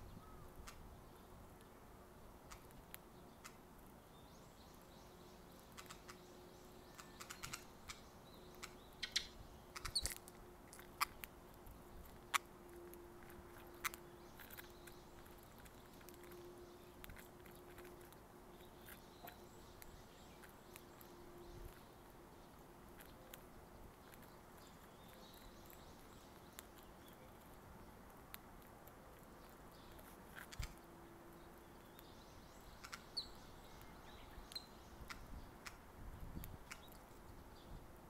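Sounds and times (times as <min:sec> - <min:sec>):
high bird chirp: 0:04.3 - 0:10.2, 0:31.8 - 0:35.4.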